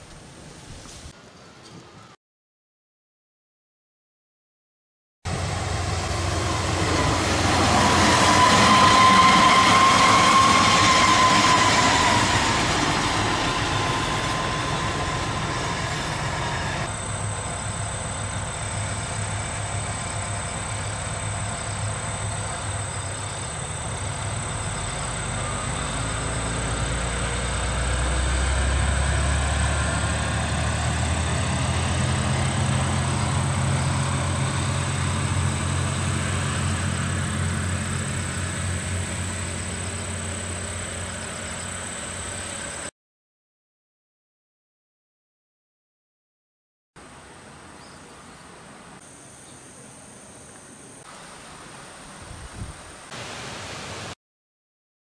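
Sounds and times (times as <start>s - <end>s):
diesel railcar passing: 5.3s - 42.9s
high whine: 5.3s - 42.9s.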